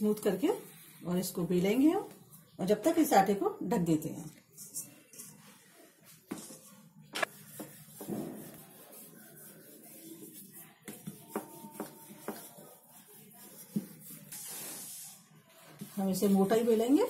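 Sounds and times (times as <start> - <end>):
rolling pin rubbing on dough: 5.2 - 17.0.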